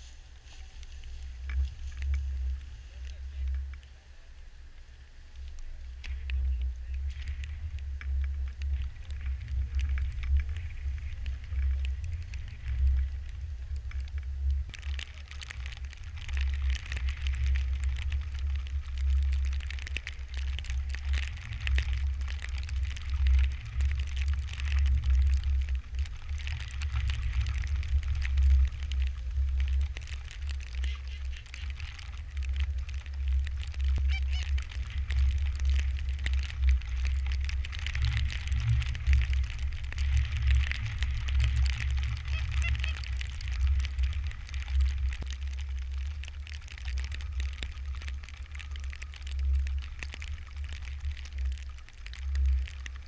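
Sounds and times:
wind rumble on microphone: 0.0 - 53.0
geese honking: 34.0 - 34.5, 42.2 - 43.0.

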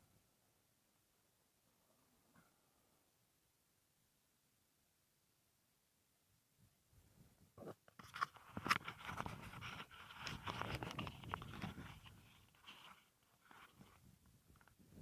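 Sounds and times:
dry grass rustling against camera: 7.6 - 15.0.

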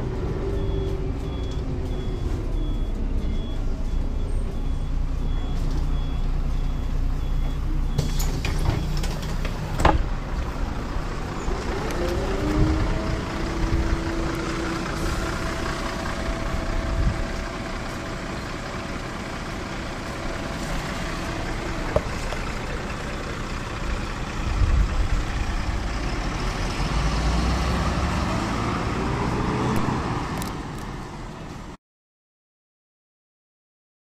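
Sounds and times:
bus diesel engine: 0.0 - 31.8.

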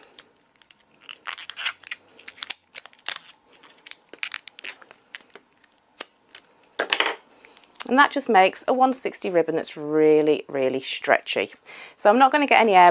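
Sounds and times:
balloon crinkling and rubbing: 0.0 - 6.5.

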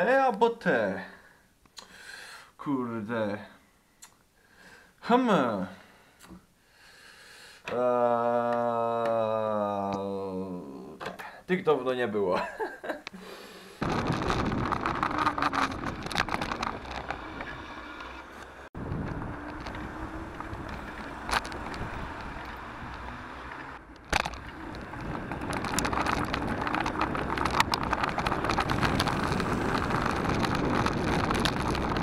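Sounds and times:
wind rushing on microphone: 13.8 - 17.8, 18.8 - 32.0
car traffic: 13.8 - 32.0.

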